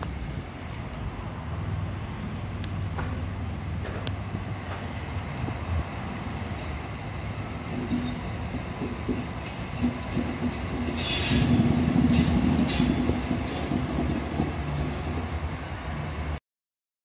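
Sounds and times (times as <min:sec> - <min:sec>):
diesel locomotive engine hum: 0:00.0 - 0:16.4
train wheels clattering over rail joints: 0:02.9 - 0:04.9, 0:07.4 - 0:15.6.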